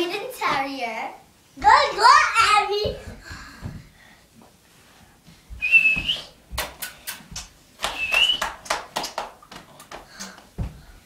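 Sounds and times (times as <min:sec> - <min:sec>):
person whistling: 0:05.6 - 0:06.4, 0:07.9 - 0:08.5.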